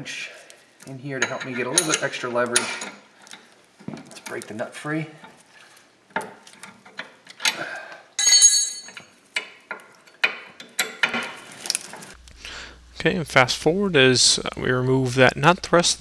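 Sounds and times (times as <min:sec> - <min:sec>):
wrenches clinking: 0:01.2 - 0:04.4, 0:05.2 - 0:12.2
ringing metal clang: 0:08.2 - 0:09.1.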